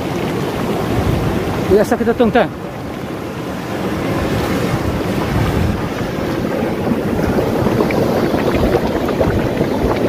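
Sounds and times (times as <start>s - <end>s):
hot spring water boiling: 0.0s - 10.0s.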